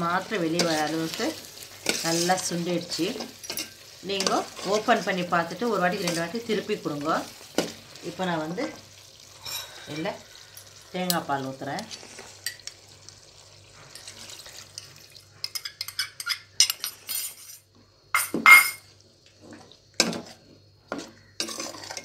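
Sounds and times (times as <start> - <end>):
metal spatula scraping pot: 0.3 - 2.6, 3.2 - 5.0, 9.3 - 10.0, 19.4 - 22.0.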